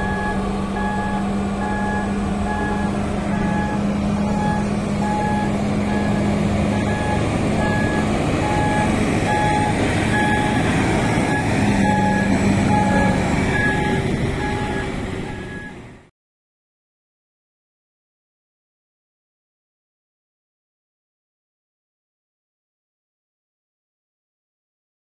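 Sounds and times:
truck reversing alarm beeping: 0:00.0 - 0:16.0
diesel engine running: 0:00.0 - 0:16.1.

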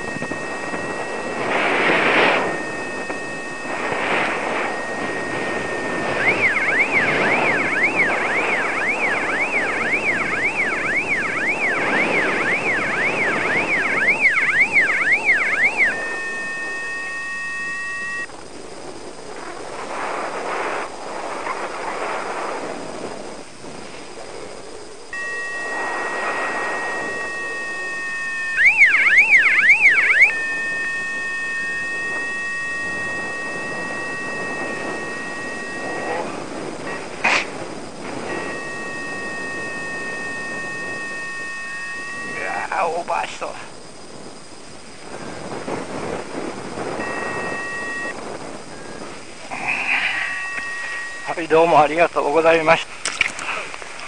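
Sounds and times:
electronic beeper warbling: 0:00.0 - 0:18.3, 0:25.2 - 0:37.2, 0:38.1 - 0:43.4, 0:46.8 - 0:52.5
wind on microphone: 0:00.0 - 0:54.0.

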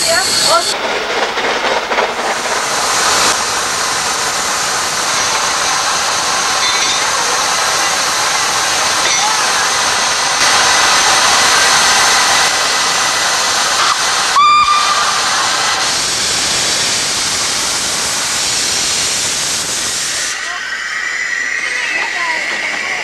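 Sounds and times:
steam locomotive hissing steam: 0:00.0 - 0:23.0
steam whistle blast: 0:13.8 - 0:16.0.

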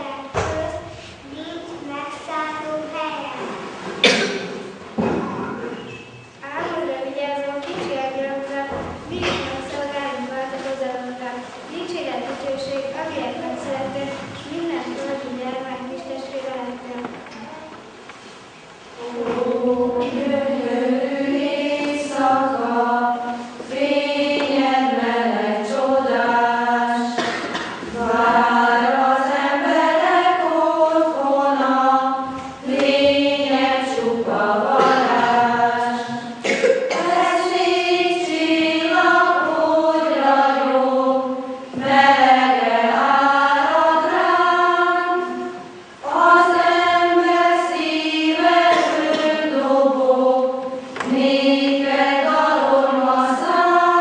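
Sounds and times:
women's choir singing: 0:19.0 - 0:54.0.

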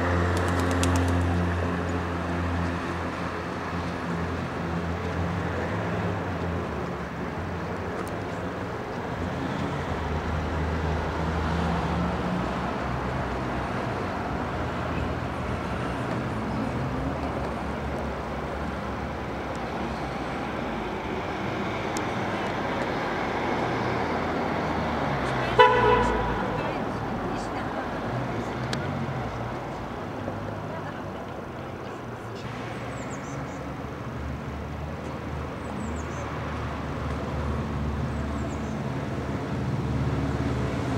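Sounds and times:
traffic noise: 0:00.0 - 0:40.9.

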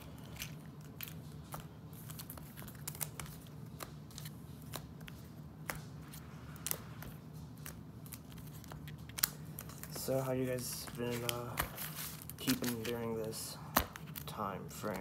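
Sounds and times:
foil packs crinkling: 0:08.1 - 0:15.0.

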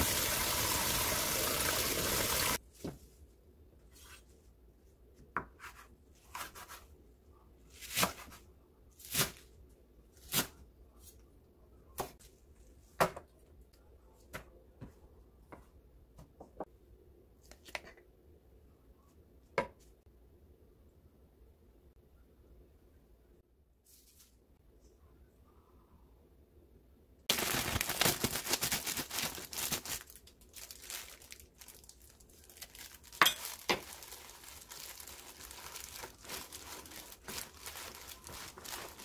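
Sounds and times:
kitchen tap water running: 0:00.0 - 0:02.6.

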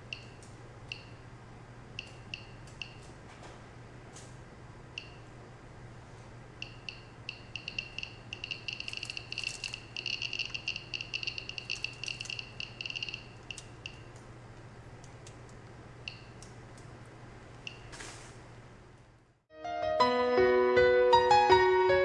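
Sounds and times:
geiger counter clicking beeps: 0:00.1 - 0:01.2, 0:02.0 - 0:03.0, 0:05.0 - 0:05.2, 0:06.6 - 0:14.2, 0:16.1 - 0:16.5, 0:17.7 - 0:17.9.

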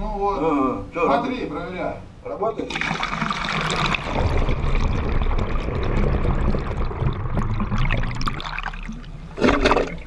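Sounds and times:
water rushing through plumbing: 0:02.7 - 0:10.0.

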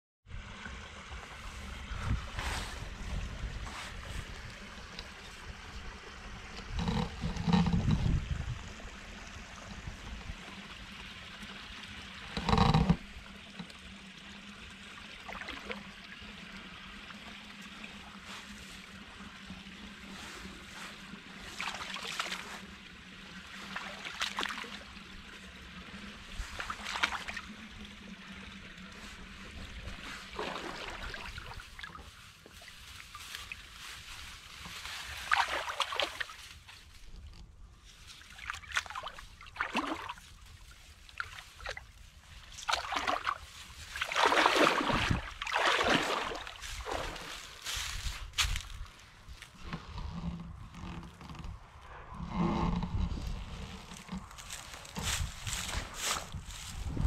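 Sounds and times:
water sloshing and trickling: 0:00.3 - 0:57.0
boots wading through water: 0:01.2 - 0:05.9, 0:17.2 - 0:51.0, 0:53.4 - 0:57.0
rustle of reeds: 0:01.4 - 0:05.5, 0:18.2 - 0:18.9, 0:20.0 - 0:22.7, 0:28.9 - 0:45.3, 0:46.0 - 0:50.3, 0:53.2 - 0:57.0.

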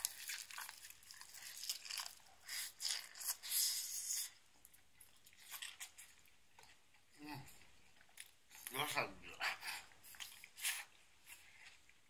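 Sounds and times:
crunching bite and chewing: 0:00.0 - 0:04.4.

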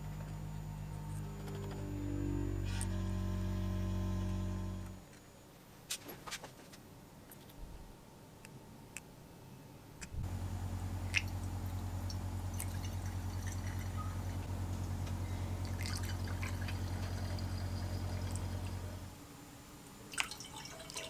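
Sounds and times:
loud steady low hum: 0:00.0 - 0:05.2, 0:07.7 - 0:19.8
water trickling and dripping: 0:11.1 - 0:14.5, 0:15.6 - 0:18.9, 0:20.1 - 0:21.0.

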